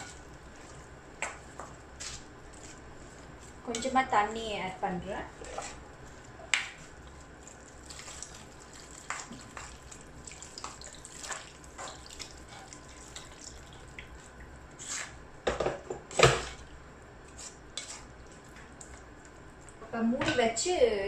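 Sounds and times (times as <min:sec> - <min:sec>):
ladle stirring: 0:00.0 - 0:15.2, 0:16.1 - 0:19.8
water pouring into a pot: 0:07.8 - 0:13.9.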